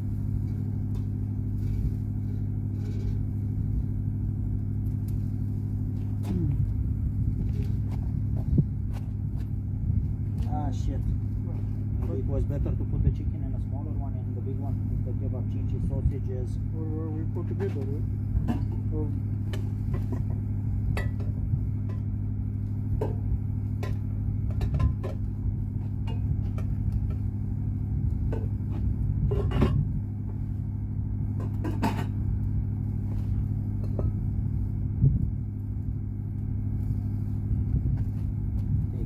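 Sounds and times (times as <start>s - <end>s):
low engine drone: 0.0s - 39.0s
light clicks and knocks on grill: 0.4s - 1.8s, 17.5s - 27.3s.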